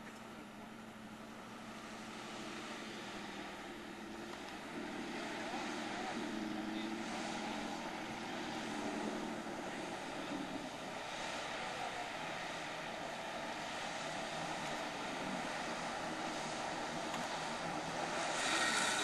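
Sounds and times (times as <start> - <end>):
car engine running: 0.0 - 19.0
rushing hiss: 17.3 - 19.0.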